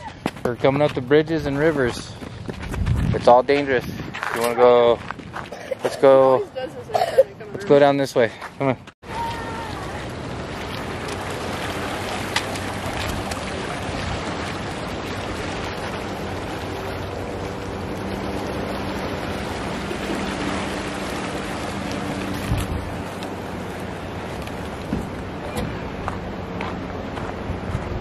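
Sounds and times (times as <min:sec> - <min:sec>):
river water rushing over riffles: 0:09.1 - 0:27.6.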